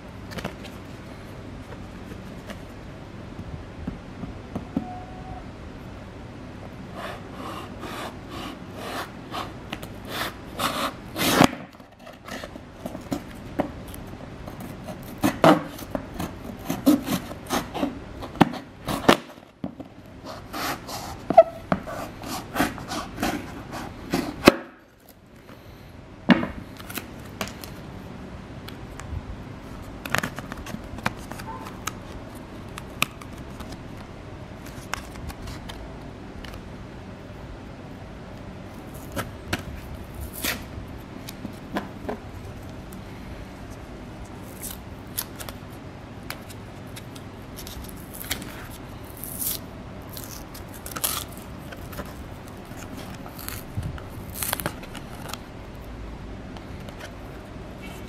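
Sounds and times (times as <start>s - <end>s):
knife sawing plastic packaging: 14.8s - 19.3s.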